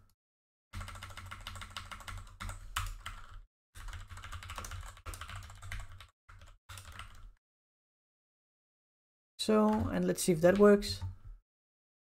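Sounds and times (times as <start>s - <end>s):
typing on computer keyboard: 0.8s - 7.3s.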